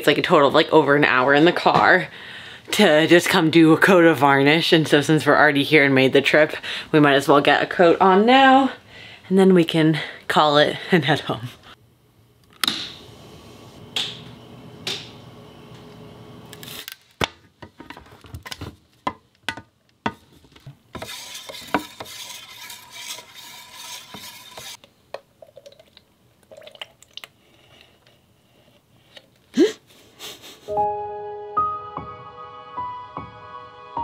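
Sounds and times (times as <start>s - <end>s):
wooden stick stirring in can: 20.1s - 27.3s.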